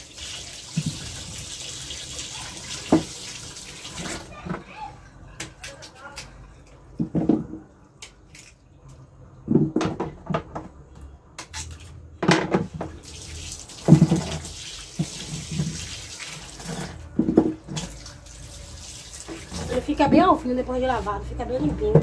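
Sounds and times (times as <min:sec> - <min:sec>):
roots washed by hand splashing: 0:00.0 - 0:04.3, 0:13.0 - 0:20.1
tap water running: 0:00.0 - 0:04.4, 0:12.6 - 0:20.4.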